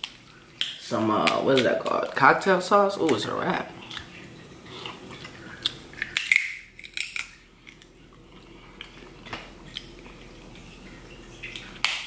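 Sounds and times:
crab shell cracking: 0.0s - 2.2s, 5.5s - 10.6s
wet chewing: 3.8s - 12.0s.

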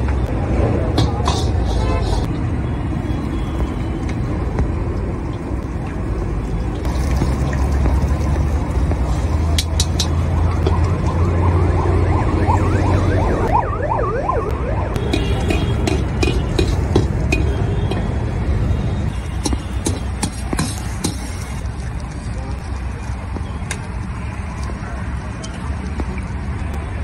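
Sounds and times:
traffic: 0.0s - 27.0s
wok burner rumble: 0.4s - 2.3s, 15.1s - 18.4s
wavering siren-like wail: 9.0s - 15.0s.

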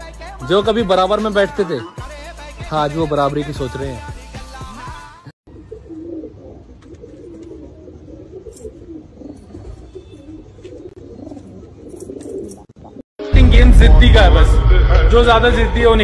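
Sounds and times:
pigeon cooing: 5.5s - 13.0s.

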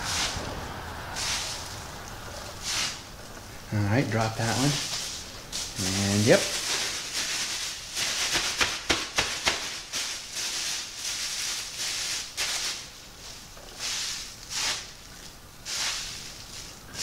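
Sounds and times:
plastic bag crinkling: 4.4s - 15.3s.

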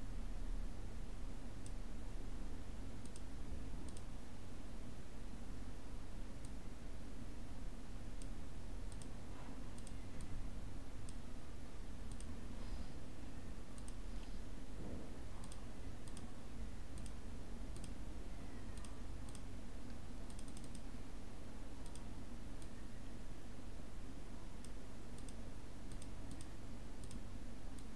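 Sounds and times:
low room hum: 0.0s - 27.9s
computer mouse clicking: 3.0s - 3.3s, 3.9s - 4.1s, 8.2s - 9.2s, 9.8s - 10.3s, 12.1s - 12.3s, 13.7s - 14.4s, 15.4s - 16.3s, 17.0s - 18.0s, 18.7s - 20.9s, 21.8s - 22.8s, 24.6s - 27.9s.

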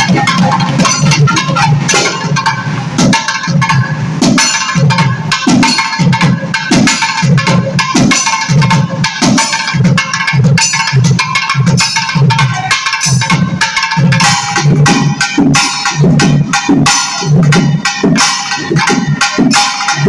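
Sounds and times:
barrel drum beating: 0.0s - 20.0s.

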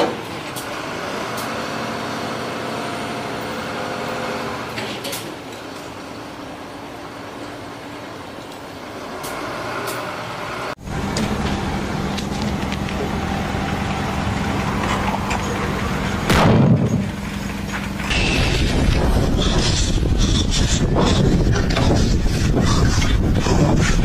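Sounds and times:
heavy truck humming: 0.0s - 24.0s
outdoor noise: 0.0s - 24.0s
loud blast: 16.2s - 17.2s.

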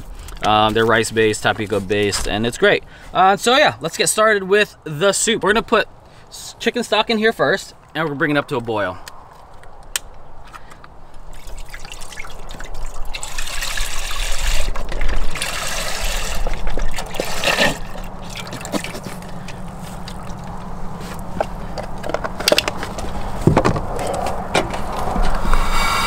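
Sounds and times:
liquid pouring into metal pot: 11.3s - 19.0s.

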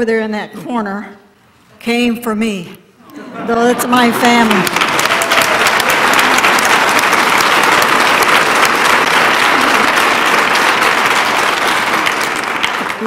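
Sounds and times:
audience applause: 4.2s - 13.0s.

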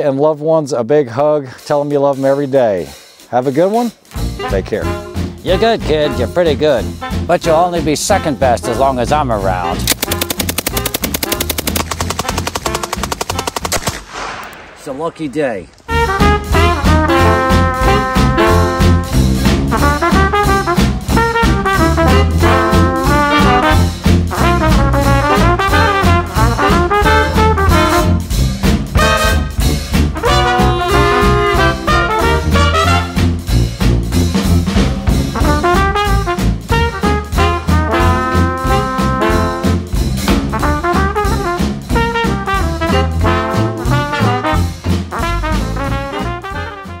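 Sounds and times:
brass-led jazz music: 4.2s - 10.1s, 15.9s - 47.0s.

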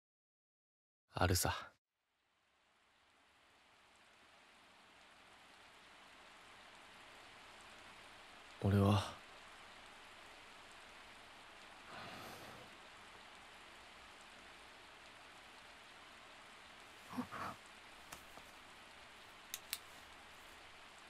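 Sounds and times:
light rain hiss: 1.2s - 21.0s
soft voice-like sound: 17.1s - 17.6s
faint ticks: 19.4s - 20.6s.

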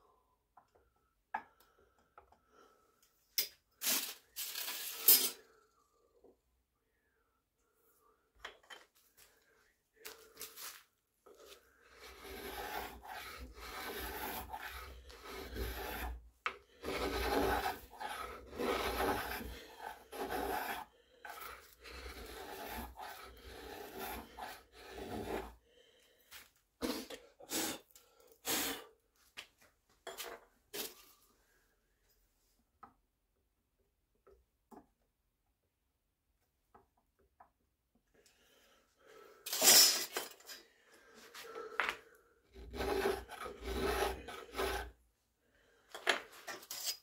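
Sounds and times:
metal tool scraping wood: 11.4s - 25.6s, 42.5s - 45.0s, 46.0s - 47.0s.

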